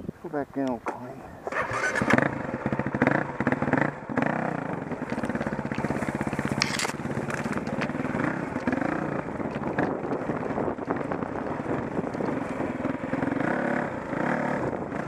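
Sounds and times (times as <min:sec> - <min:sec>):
brush scraping bike: 0:01.5 - 0:13.3
dirt bike engine revving: 0:01.5 - 0:15.0.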